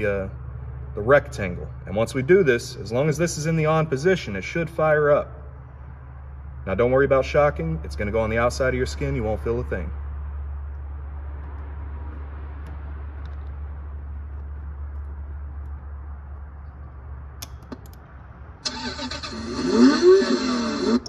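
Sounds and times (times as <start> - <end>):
low hum: 0.0 - 21.0
toy engine revving sound effect: 18.6 - 21.0.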